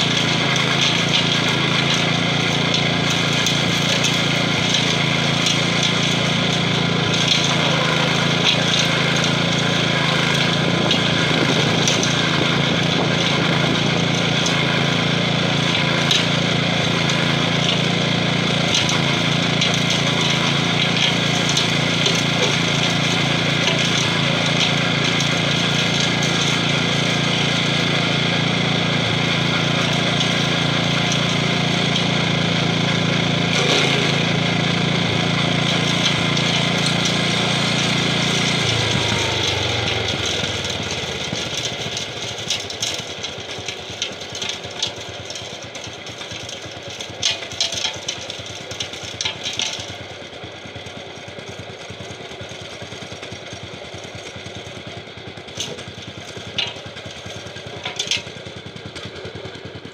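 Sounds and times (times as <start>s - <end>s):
stump grinder chewing wood: 0.0s - 59.9s
tractor engine running under load: 0.0s - 59.9s.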